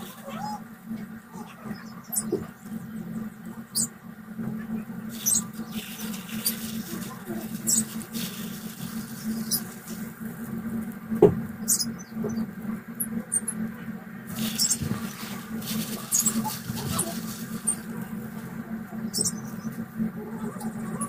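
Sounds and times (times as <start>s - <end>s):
steady low hum: 0.0s - 21.0s
honeycomb squelching and crackling: 4.9s - 11.2s, 14.3s - 20.0s
plastic glove crinkling: 5.1s - 10.9s, 14.3s - 18.6s.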